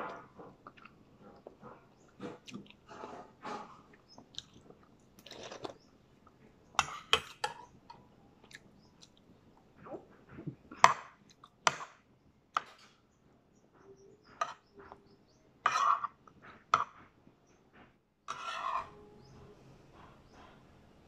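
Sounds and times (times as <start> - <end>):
quiet chewing: 0.4 - 11.6
metal spoon scraping ceramic plate: 15.6 - 16.2, 18.3 - 19.3.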